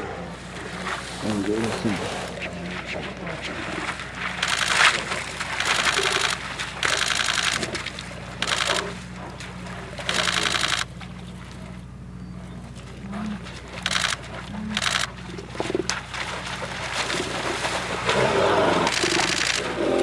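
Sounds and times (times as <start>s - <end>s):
steady low hum: 0.0s - 20.0s
bears growling harshly: 18.0s - 20.0s.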